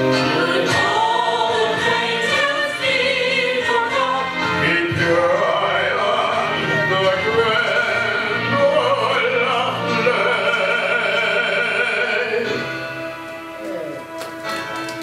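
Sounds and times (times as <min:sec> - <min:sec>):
orchestral backing music: 0:00.0 - 0:15.0
man singing operatically: 0:04.6 - 0:12.8.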